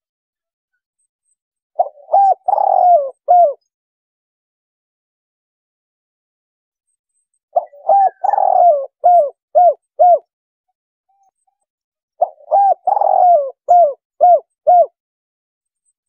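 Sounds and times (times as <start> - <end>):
dove cooing: 1.8 - 3.6, 7.6 - 10.3, 12.2 - 15.0.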